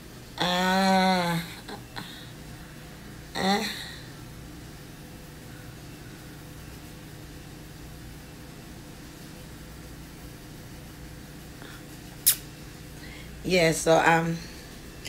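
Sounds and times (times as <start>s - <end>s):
appliance humming: 0.0s - 15.0s
lip-smacking kiss: 12.2s - 12.5s.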